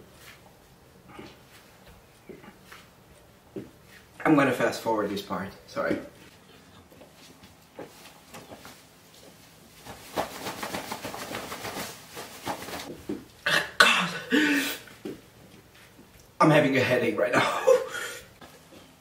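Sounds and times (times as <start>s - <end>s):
man coughing: 13.4s - 14.8s, 17.3s - 18.3s
man breathing hard: 14.3s - 14.9s.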